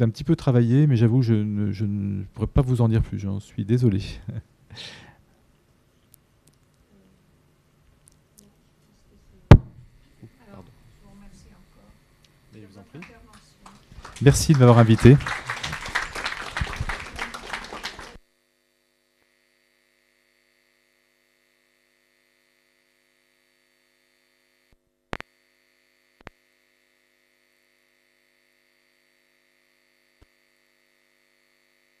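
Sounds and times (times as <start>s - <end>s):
faint steady hum: 0.0s - 32.0s
audience applauding: 12.9s - 18.2s.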